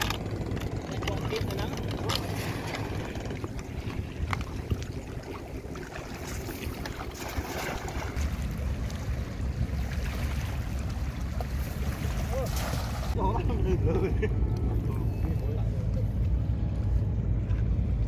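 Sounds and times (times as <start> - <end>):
wind noise on microphone: 2.3 - 13.1.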